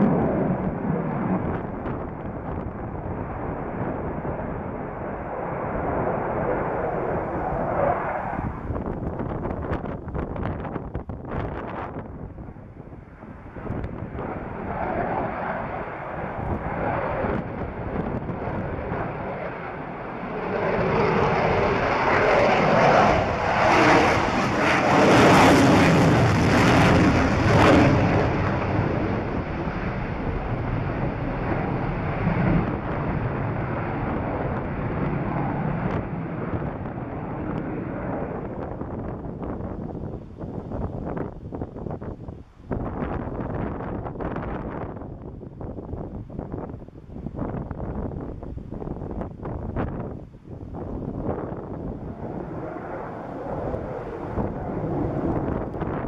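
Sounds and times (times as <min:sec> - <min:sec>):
jet flying overhead: 0:00.0 - 0:56.0.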